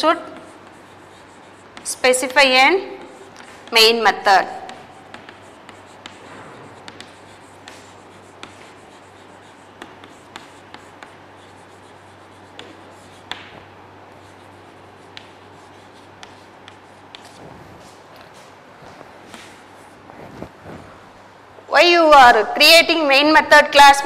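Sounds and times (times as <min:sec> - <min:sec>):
chalk scratching on blackboard: 0:00.0 - 0:18.6
chalk tapping on board: 0:00.2 - 0:17.4.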